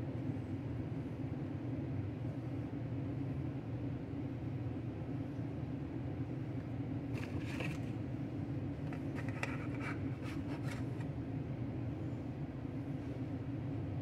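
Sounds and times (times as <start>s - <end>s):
steady low hum: 0.0s - 14.0s
spatula scraping plastic container: 8.9s - 11.0s.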